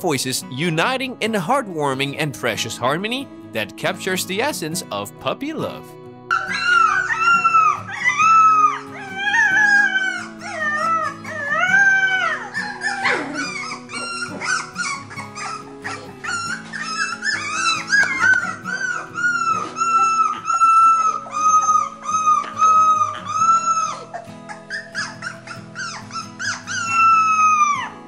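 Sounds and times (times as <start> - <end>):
background music with low notes: 0.0 - 28.0
puppies howling: 6.3 - 28.0.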